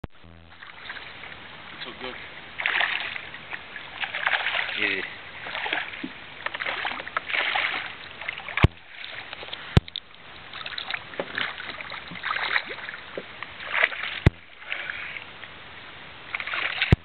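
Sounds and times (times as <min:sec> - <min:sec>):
fish splashing at surface: 0:02.6 - 0:09.6, 0:16.4 - 0:17.0.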